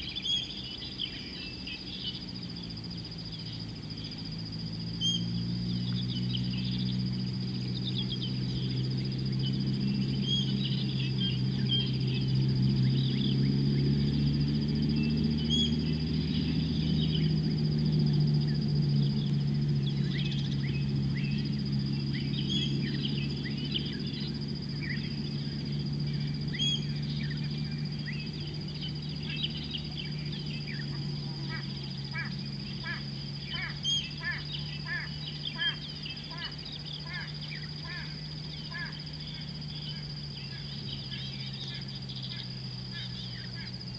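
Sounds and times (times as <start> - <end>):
high insect buzz: 0.0 - 43.9
steady low hum: 0.0 - 43.9
birds chirping and calling: 5.0 - 14.2, 18.4 - 43.8.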